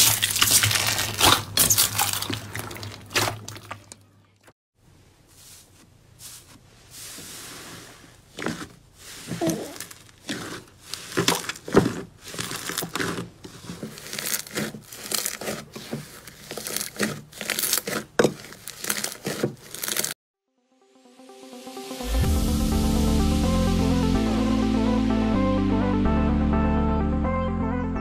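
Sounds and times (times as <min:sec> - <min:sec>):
hands squishing slime: 0:08.2 - 0:20.1.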